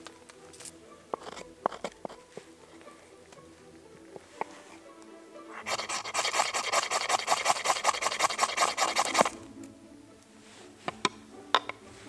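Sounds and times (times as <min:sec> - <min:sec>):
knife scraping ferrocerium rod: 0:01.1 - 0:02.3, 0:05.5 - 0:09.4.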